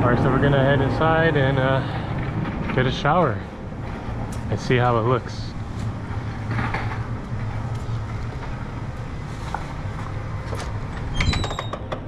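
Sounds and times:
vehicle engines idling: 0.0 - 12.0
footsteps on concrete: 7.7 - 10.9.

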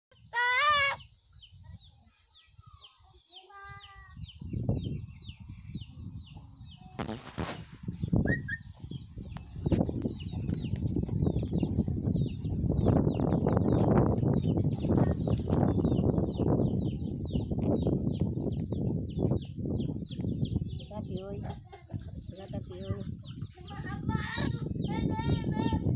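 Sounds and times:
parrot squawking: 0.3 - 1.0.

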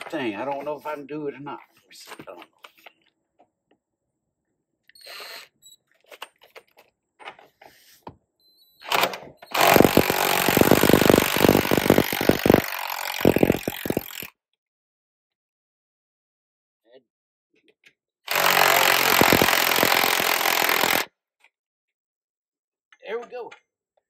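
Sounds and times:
impact wrench hammering: 9.6 - 14.3, 18.3 - 21.1
tools clicking: 9.6 - 14.3.

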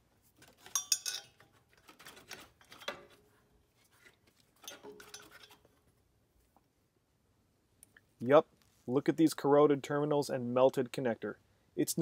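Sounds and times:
metal clinks and scrapes: 0.3 - 5.9.

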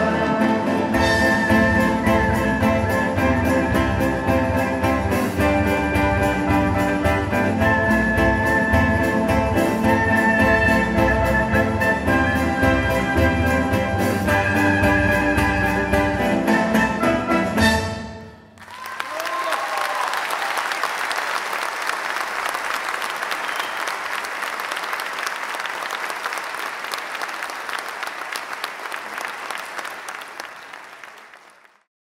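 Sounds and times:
audience applause: 18.6 - 31.9.

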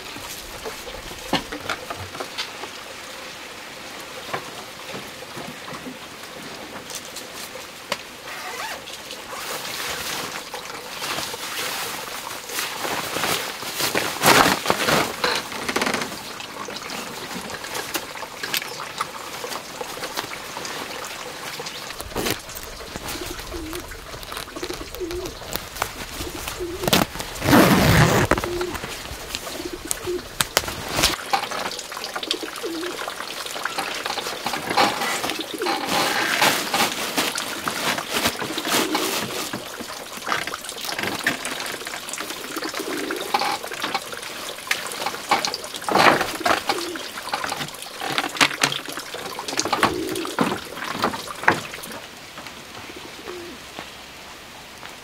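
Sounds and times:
pigeons cooing: 21.7 - 31.2, 32.1 - 36.6, 38.2 - 40.8, 42.1 - 48.0, 48.8 - 51.4, 52.8 - 53.7.

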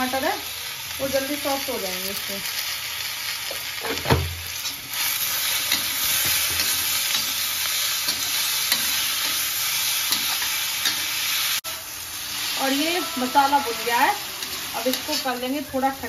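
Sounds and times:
food sizzling in hot oil: 0.0 - 16.0
spatula scraping pan: 12.3 - 15.7.

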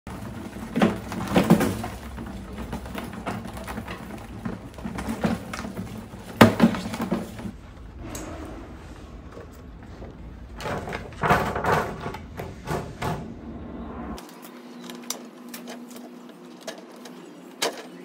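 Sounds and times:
rat claws scratching on plastic: 0.1 - 7.6
sharp knocks and clatters: 0.1 - 13.5.

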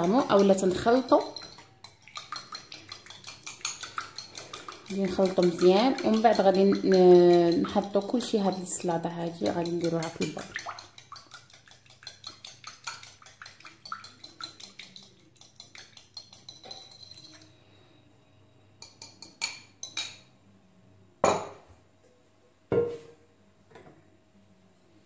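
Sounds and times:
mixing bowl knocks: 0.0 - 14.9
whisk clinking against glass bowl: 0.0 - 17.5, 18.8 - 20.2.

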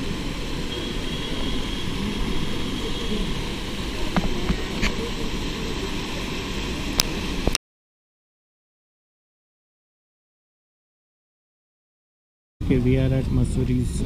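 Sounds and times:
waterfall rushing over rocks: 0.0 - 7.6.

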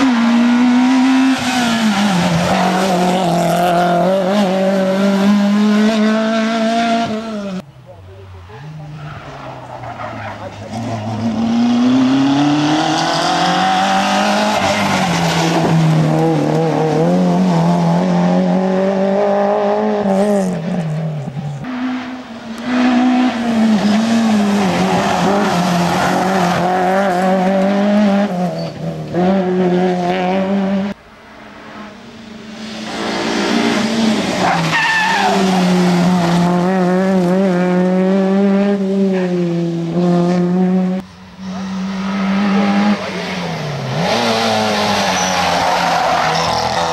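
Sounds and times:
rally car engines revving: 0.0 - 46.9
tyre squeal: 28.5 - 28.8, 34.4 - 35.8, 44.6 - 46.9.

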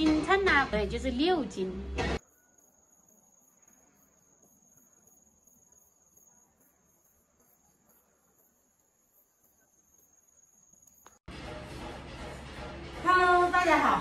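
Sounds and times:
high-pitched insect trill: 2.2 - 11.3.

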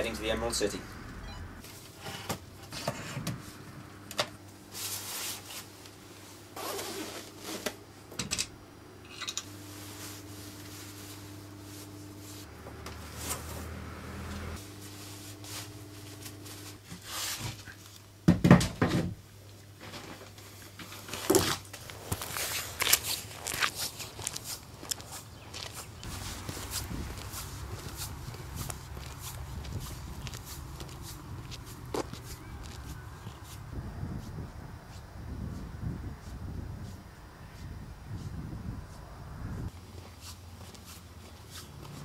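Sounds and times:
low hum: 0.0 - 1.6
boots crunching on gravel: 21.2 - 33.6.

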